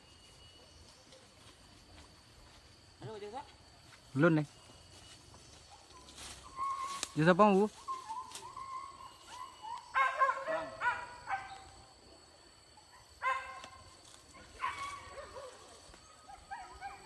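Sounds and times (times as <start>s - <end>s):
dogs yelping: 7.9s - 11.8s, 12.8s - 17.0s.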